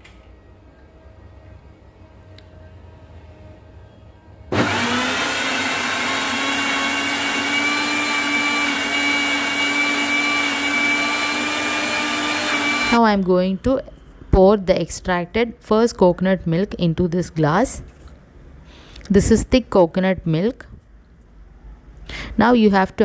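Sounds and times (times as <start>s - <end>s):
blender motor whining: 4.5s - 13.0s.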